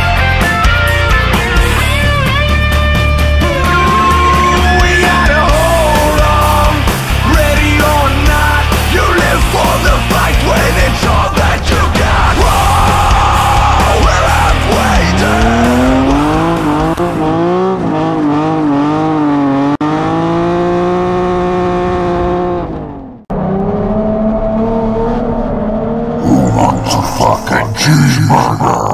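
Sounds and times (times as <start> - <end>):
heavy rock music: 0.0 - 17.6, 26.2 - 28.9
car engine revving: 0.0 - 27.4.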